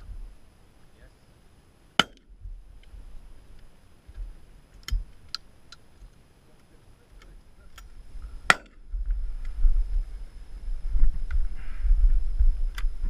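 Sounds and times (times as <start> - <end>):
wind rumble on microphone: 0.0 - 0.4, 7.1 - 13.0
sharp crack: 2.0 - 2.4, 7.2 - 8.8
shotgun metallic clicks: 4.7 - 6.2.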